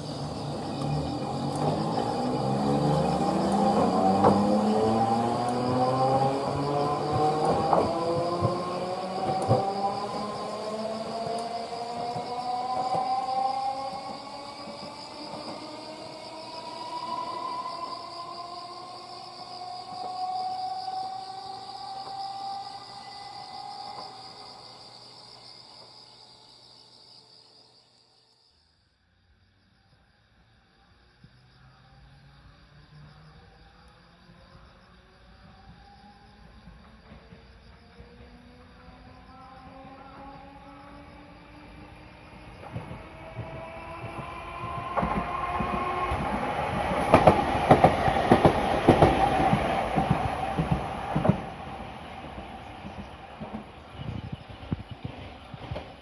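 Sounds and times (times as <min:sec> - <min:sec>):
tram whine pulling away: 0:00.0 - 0:26.4, 0:31.4 - 0:56.0
electric train passing: 0:00.0 - 0:28.0, 0:29.4 - 0:56.0
insects trilling: 0:00.0 - 0:56.0
train wheels clacking over rail joints: 0:45.0 - 0:51.6.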